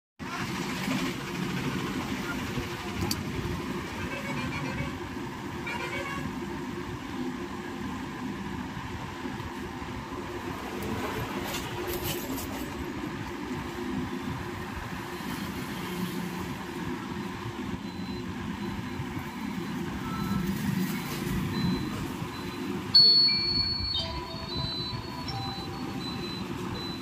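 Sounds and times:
loud high beep: 17.8s - 27.0s
short electronic notes: 21.5s - 27.0s.

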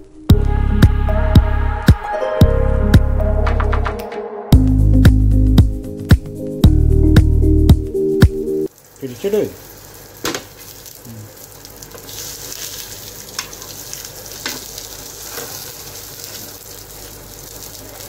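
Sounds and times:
music: 0.0s - 8.7s
burger patties sizzling in oil: 8.7s - 18.0s.

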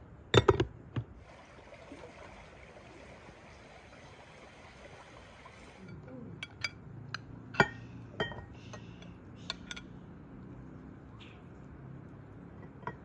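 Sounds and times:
glassware and utensils clinking: 0.4s - 0.7s, 5.8s - 9.9s, 12.6s - 13.0s.

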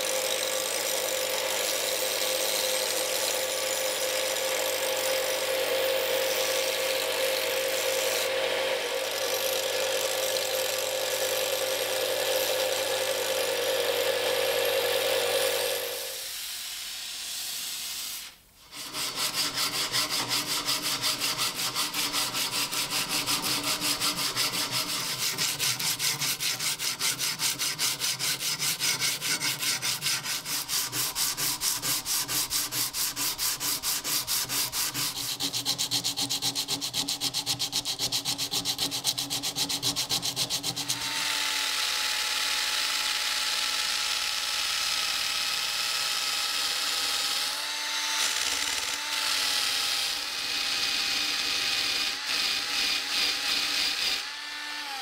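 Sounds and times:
belt grinder grinding metal: 0.0s - 55.0s
hand abrasive rubbing metal: 18.6s - 41.1s.

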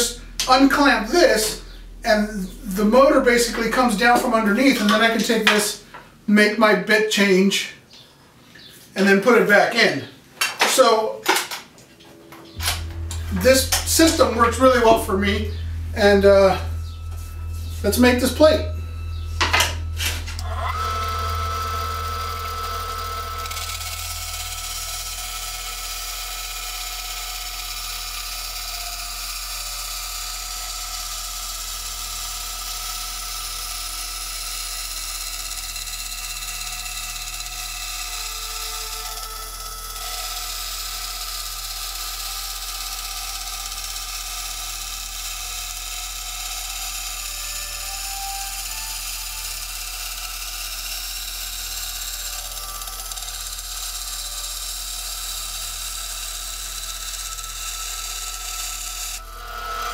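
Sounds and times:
bandsaw cutting metal: 0.0s - 6.1s, 12.5s - 59.9s.

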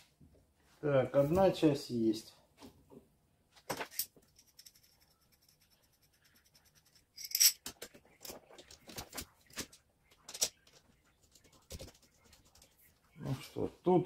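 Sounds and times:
steel tool parts clinking: 7.1s - 7.7s.

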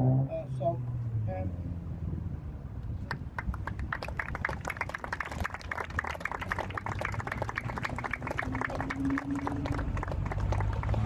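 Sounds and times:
small group clapping: 3.1s - 11.0s.

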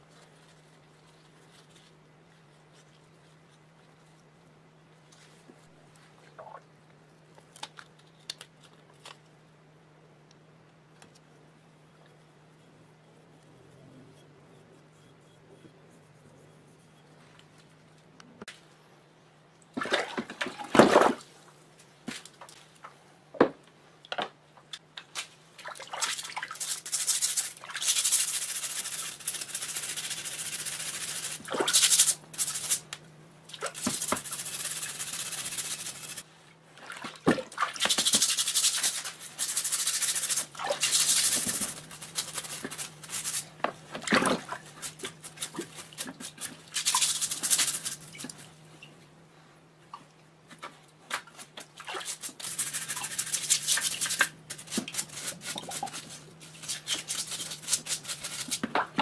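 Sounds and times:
plastic brush scrubbing metal parts: 26.0s - 36.3s, 37.7s - 48.5s, 50.6s - 59.0s.

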